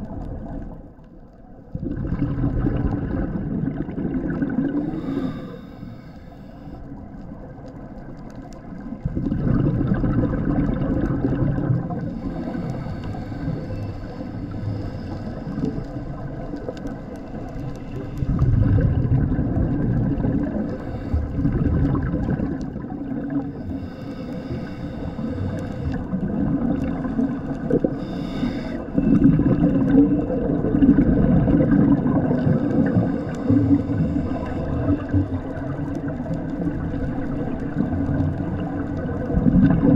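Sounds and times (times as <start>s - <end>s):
underwater bubbles rumbling: 0.0s - 39.9s
steady droning hum: 4.3s - 8.2s, 11.6s - 31.4s, 32.1s - 39.9s.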